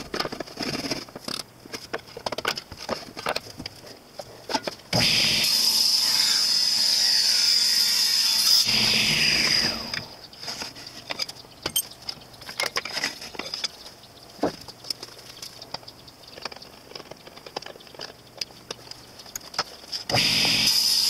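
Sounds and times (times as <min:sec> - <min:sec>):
table saw running: 0:05.0 - 0:10.1, 0:20.1 - 0:21.0.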